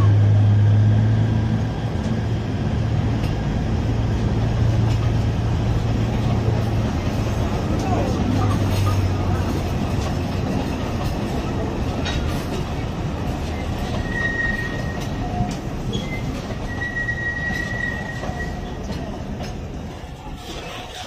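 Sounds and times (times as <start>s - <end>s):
train rumbling past: 0.0s - 21.0s
train wheels clicking: 3.0s - 21.0s
high-pitched wheel squeals: 13.6s - 18.8s.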